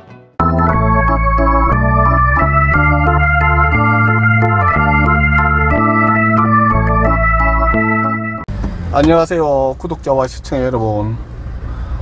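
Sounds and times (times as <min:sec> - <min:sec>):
organ-like chords: 0:00.4 - 0:08.5
slow bass line: 0:00.4 - 0:09.0.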